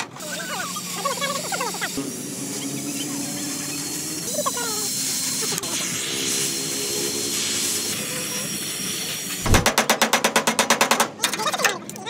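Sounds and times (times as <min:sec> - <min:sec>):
gas torch hissing: 0:01.3 - 0:09.6.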